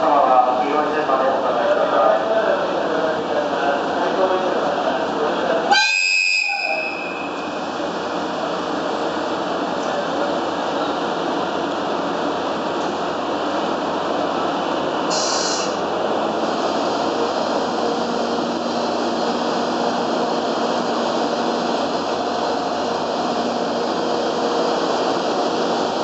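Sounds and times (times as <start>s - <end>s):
train running noise: 0.0s - 26.0s
short hiss: 15.1s - 15.8s.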